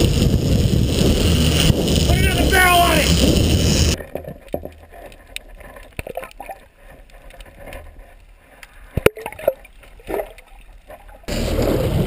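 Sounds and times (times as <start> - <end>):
faint clicks and ticks: 1.5 - 11.3
low underwater hum: 3.0 - 12.0.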